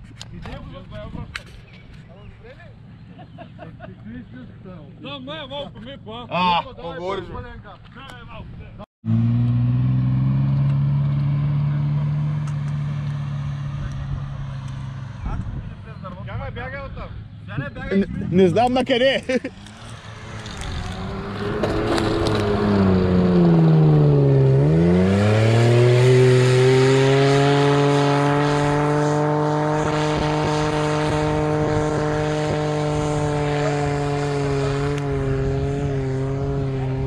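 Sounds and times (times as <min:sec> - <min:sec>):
engine under load: 0:19.3 - 0:37.0.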